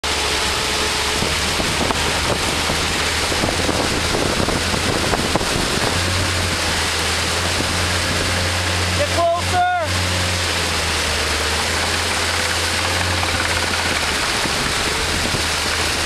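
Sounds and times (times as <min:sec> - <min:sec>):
churning wake water: 0:00.0 - 0:16.0
low engine hum: 0:00.0 - 0:16.0
wind rushing over microphone: 0:01.0 - 0:09.0, 0:13.2 - 0:16.0.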